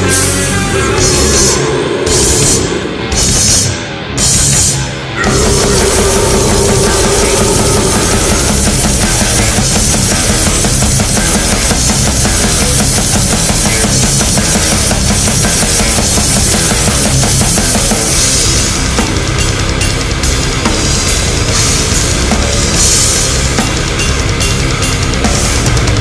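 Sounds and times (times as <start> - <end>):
death doom metal music: 0.0 - 26.0
cymbal hits: 5.2 - 13.5.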